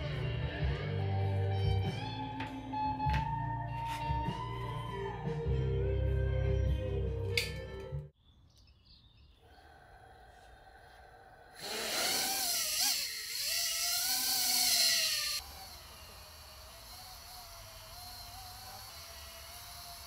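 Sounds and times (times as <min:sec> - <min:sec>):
quadcopter motors whining: 0:11.6 - 0:20.0.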